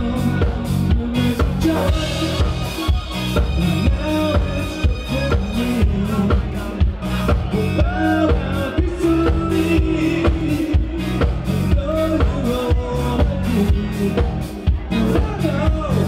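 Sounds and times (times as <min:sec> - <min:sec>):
lead guitar bent notes: 0:00.0 - 0:11.8
bass guitar: 0:00.0 - 0:16.0
drum kit beat: 0:00.0 - 0:16.0
electric guitar: 0:00.0 - 0:16.0.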